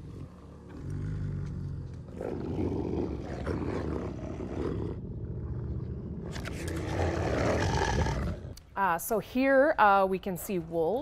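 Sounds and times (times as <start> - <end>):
wolves growling and snarling: 0.0 - 8.6.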